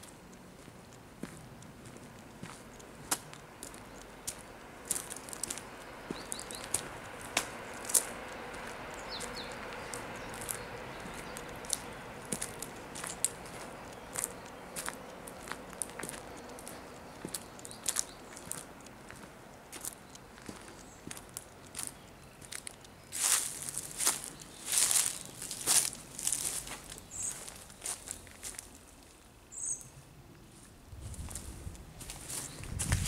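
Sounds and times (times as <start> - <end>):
footsteps crunching on gravel: 0.0 - 29.0, 30.5 - 33.0
faint outdoor hiss: 0.0 - 33.0.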